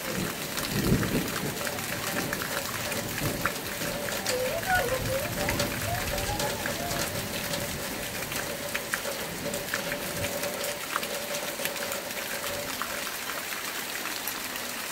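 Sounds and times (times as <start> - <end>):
raindrops ticking sharply: 0.0 - 14.6
steady rain hiss: 0.0 - 14.9.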